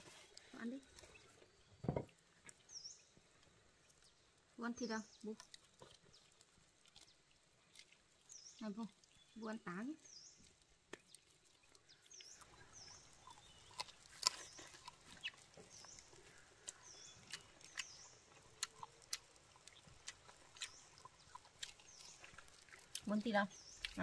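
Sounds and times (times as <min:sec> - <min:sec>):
chewing and lip smacks: 0:05.2 - 0:09.3, 0:10.1 - 0:24.0.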